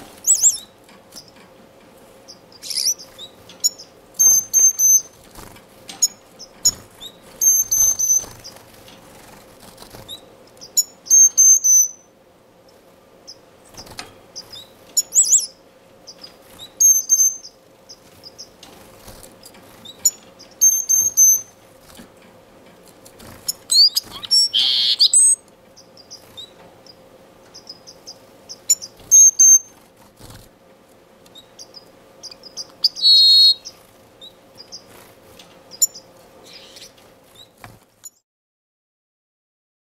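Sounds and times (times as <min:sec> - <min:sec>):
bird whistled phrases: 0:23.7 - 0:25.4, 0:32.8 - 0:33.7
brief bird call: 0:24.1 - 0:25.4.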